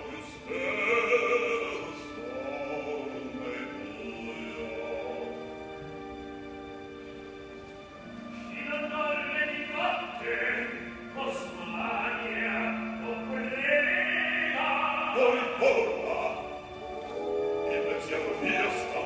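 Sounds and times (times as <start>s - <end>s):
male opera singing: 0.0s - 5.9s, 8.0s - 19.0s
orchestral chords: 0.0s - 19.0s.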